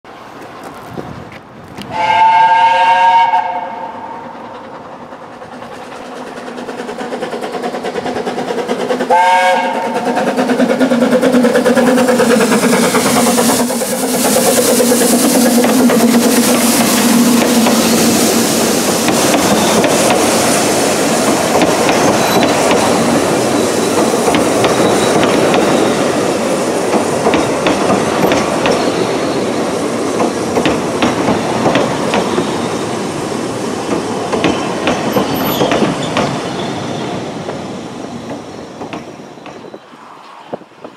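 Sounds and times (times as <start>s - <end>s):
train passing rumble: 0.1s - 40.9s
steam locomotive whistle: 1.9s - 4.4s, 9.0s - 10.3s
wheels clacking over rail joints: 4.3s - 39.8s.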